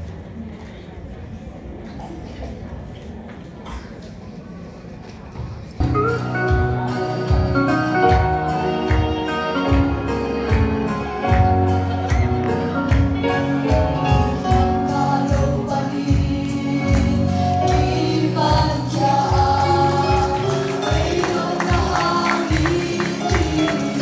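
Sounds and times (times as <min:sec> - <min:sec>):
band accompaniment: 0:05.8 - 0:24.0
choir singing gospel: 0:14.5 - 0:24.0.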